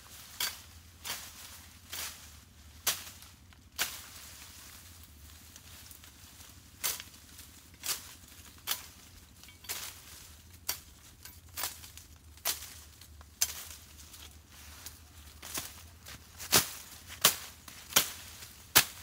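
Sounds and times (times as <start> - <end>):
machete chopping brush: 2.8 - 4.2, 9.7 - 12.8, 14.8 - 19.0.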